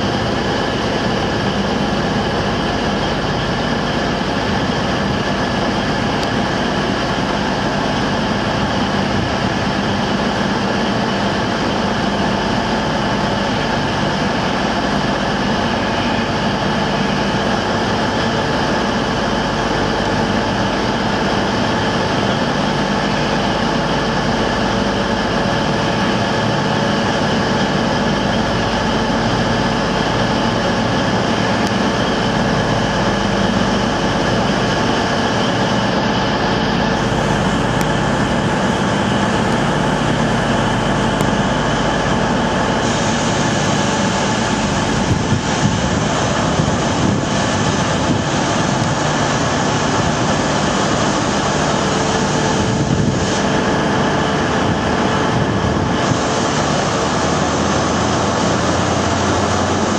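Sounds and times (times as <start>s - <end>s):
diesel engine droning: 0.0s - 59.9s.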